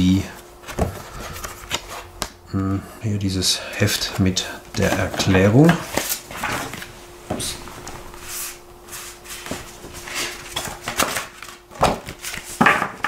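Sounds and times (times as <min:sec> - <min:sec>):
faint steady hum: 0:00.0 - 0:13.0
paper rustling: 0:00.6 - 0:02.1, 0:04.8 - 0:06.9, 0:08.1 - 0:12.6.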